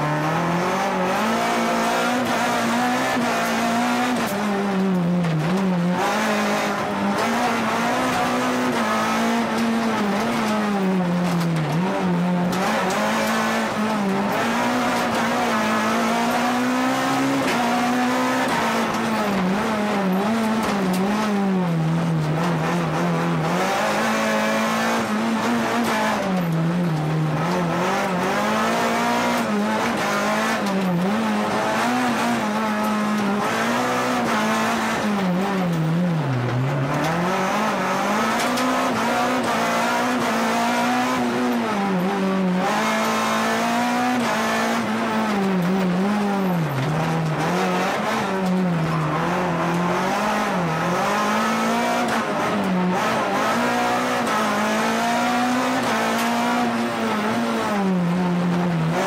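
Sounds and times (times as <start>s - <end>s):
rally car engine revving: 0.0s - 59.0s.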